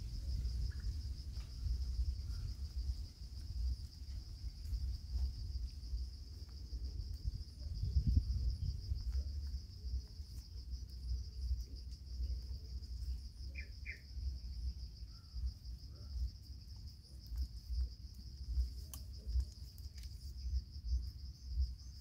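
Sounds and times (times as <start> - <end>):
insects trilling: 0.0 - 22.0.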